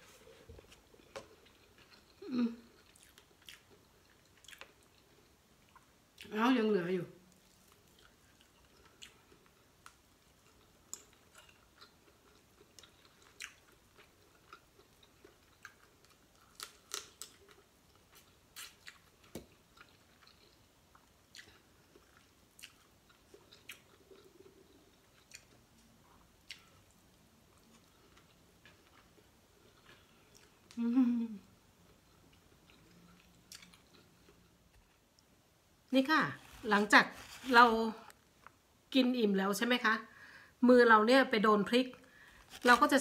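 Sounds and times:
chewing and lip smacks: 1.0 - 6.3, 7.3 - 27.0, 32.3 - 34.6.

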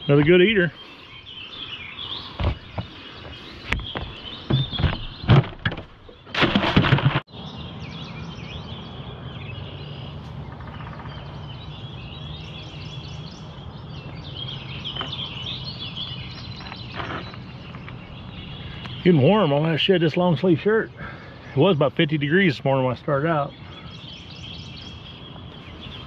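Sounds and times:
songbirds chirping and singing: 0.0 - 26.0
clattering and knocking at cooler: 3.8 - 7.2.

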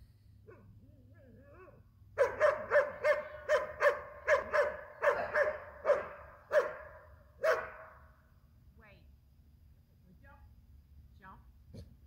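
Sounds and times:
dog whining: 0.5 - 1.8
dog barking: 2.2 - 8.0.

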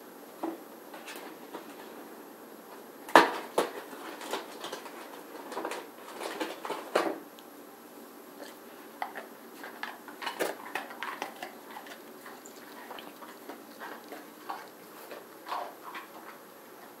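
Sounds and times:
dog claws clicking on hard floor: 9.0 - 16.4.

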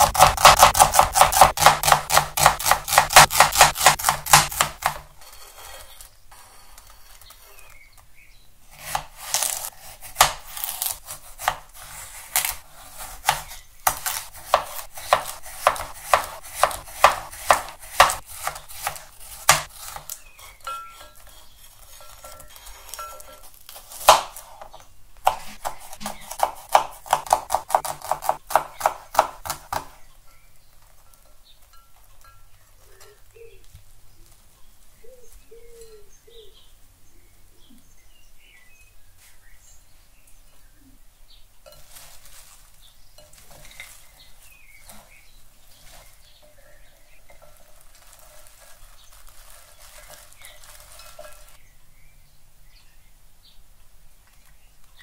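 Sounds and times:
knife chopping on cutting board: 0.0 - 5.1, 8.7 - 20.2, 25.2 - 30.0.

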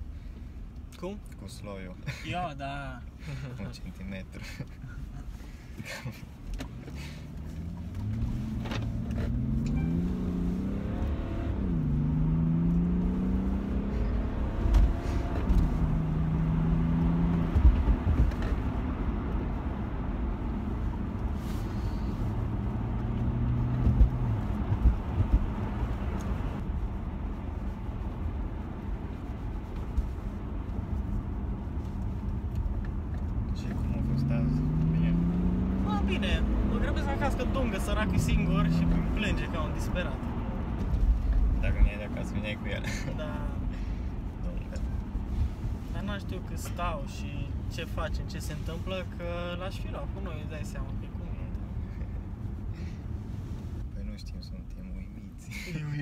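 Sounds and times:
low road rumble: 0.0 - 56.0
car engine accelerating: 6.0 - 54.1
thumps from bumps: 23.6 - 25.8.

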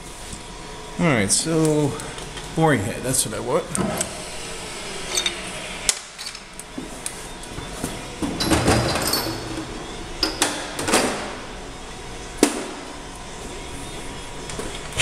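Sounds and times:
metal tools clinking: 5.1 - 5.4, 8.4 - 9.6.

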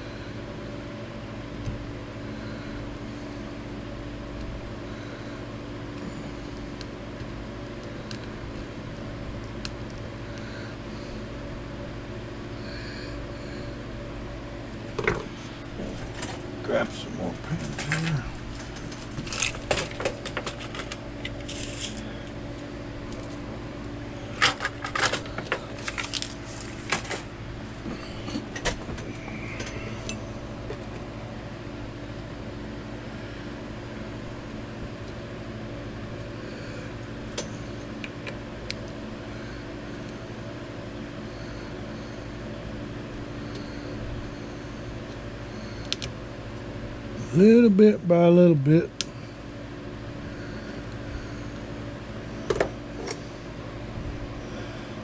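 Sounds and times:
steady mechanical hum: 0.0 - 55.0.

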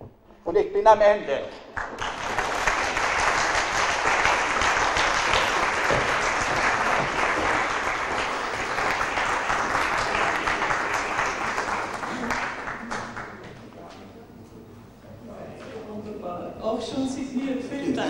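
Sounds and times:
audience applauding: 1.8 - 13.5.

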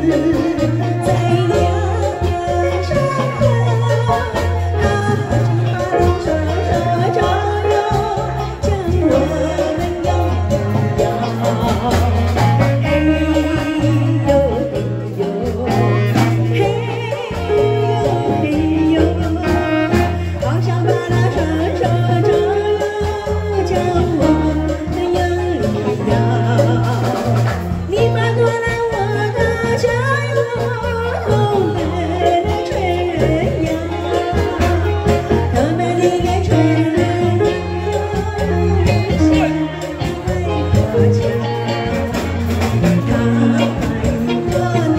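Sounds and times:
instrumental accompaniment with bass: 0.0 - 44.9
woman singing into a microphone: 0.0 - 44.9.

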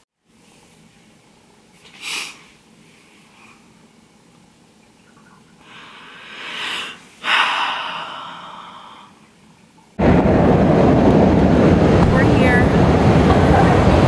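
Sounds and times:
person breathing in and sighing: 5.6 - 9.2
road noise inside car: 10.0 - 14.0.

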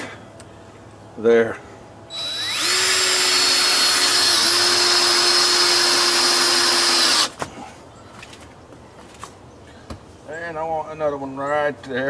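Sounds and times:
power drill whining: 2.1 - 7.3.

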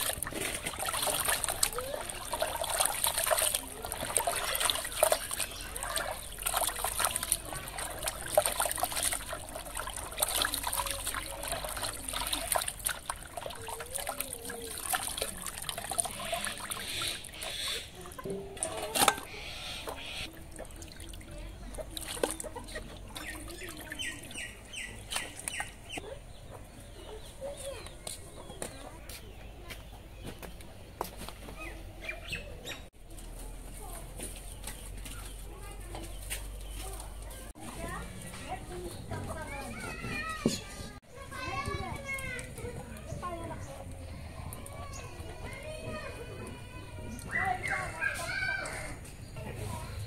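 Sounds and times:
water splashing in steel bucket: 0.0 - 25.8.

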